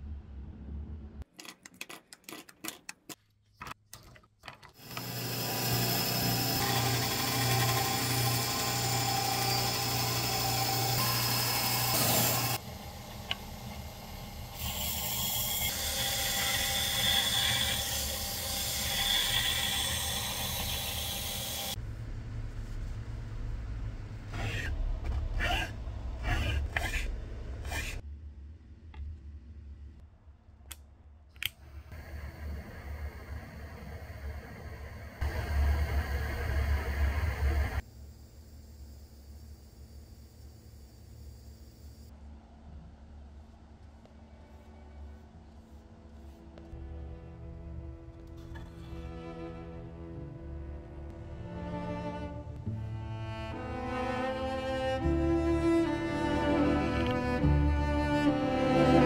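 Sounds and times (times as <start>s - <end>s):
power tool cutting wood: 4.8s - 21.8s.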